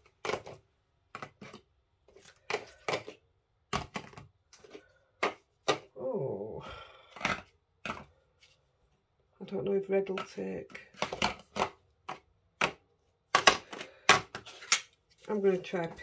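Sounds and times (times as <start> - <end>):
plastic cases clicking: 2.2 - 5.9, 10.2 - 15.0.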